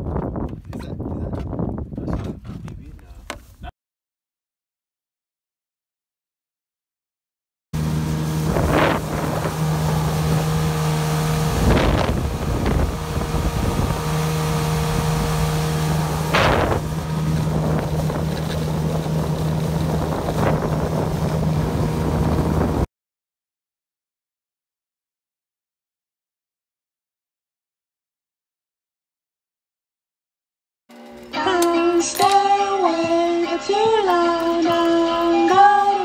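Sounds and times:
wind buffeting microphone: 0.0 - 3.7, 7.8 - 22.9
motorboat engine humming: 7.8 - 22.9.

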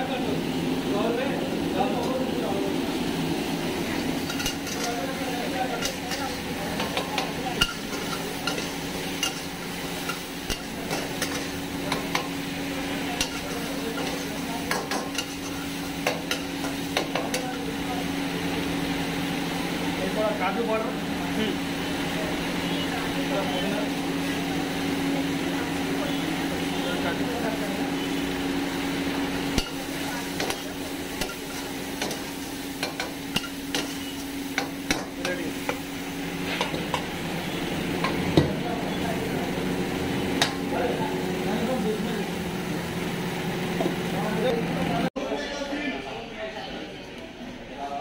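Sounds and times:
food sizzling: 0.0 - 45.0
metal ladle clanking against a wok: 4.2 - 5.1, 5.7 - 12.4, 13.2 - 17.6, 29.5 - 35.9.

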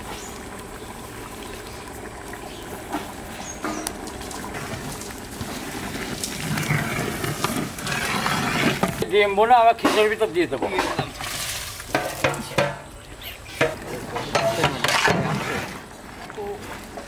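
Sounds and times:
ladle stirring sloshing pot: 1.4 - 9.1
ladle knocking against pot: 11.9 - 12.9.

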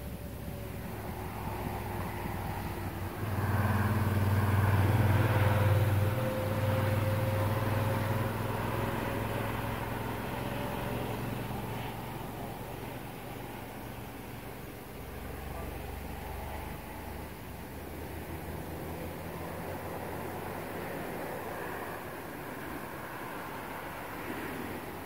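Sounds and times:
vehicle passing by: 0.0 - 25.0.

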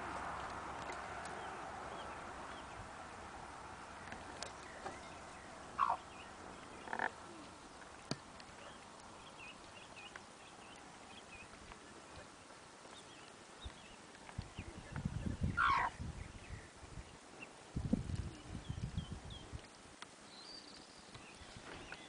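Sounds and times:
ducklings peeping: 5.8 - 7.2, 14.7 - 16.0.

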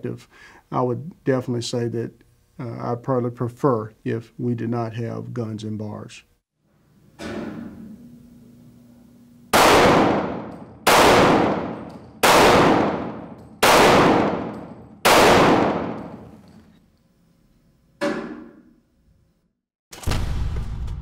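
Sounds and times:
handgun shots echoing: 9.6 - 16.5.

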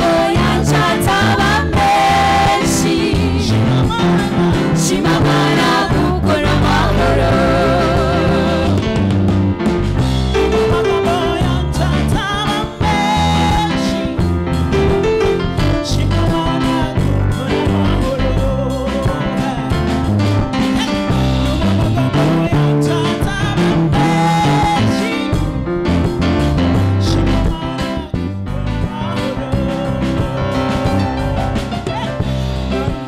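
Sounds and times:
gospel choir singing: 0.0 - 9.3, 21.6 - 25.5, 29.0 - 33.0
live band with bass: 0.0 - 33.0
steady drum beat: 0.0 - 33.0.

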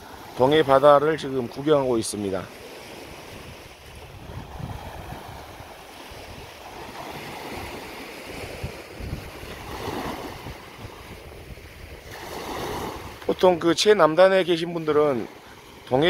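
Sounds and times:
sea waves washing onto sand: 0.0 - 16.0
wind rumbling on microphone: 2.9 - 13.5.

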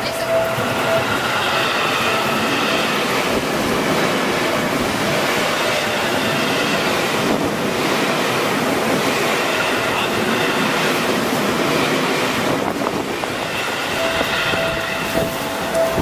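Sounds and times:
train wheels rushing on rails: 0.0 - 16.0.

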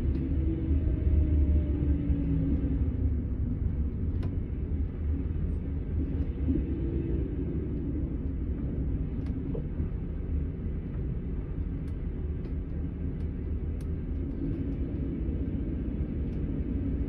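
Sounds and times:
coach engine rumble: 0.0 - 17.0.

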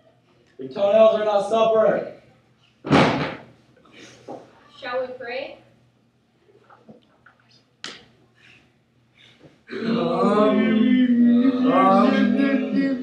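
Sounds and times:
young voices chanting: 9.7 - 13.0.

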